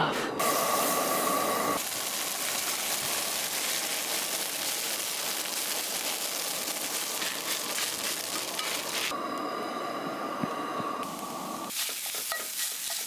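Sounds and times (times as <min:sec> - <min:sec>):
hash browns sizzling in oil: 0:00.4 - 0:09.2, 0:11.7 - 0:13.0.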